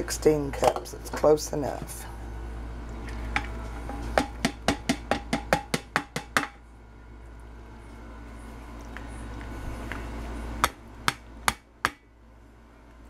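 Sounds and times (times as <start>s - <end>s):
colander knocking on steel: 3.9s - 6.6s.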